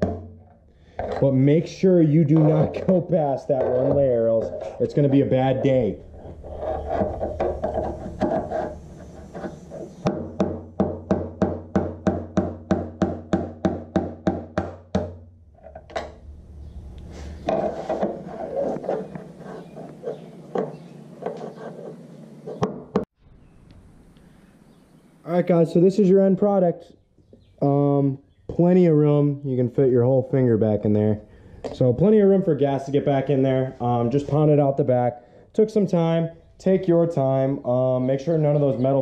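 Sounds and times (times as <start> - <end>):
scattered knocks: 6.8 - 16.1.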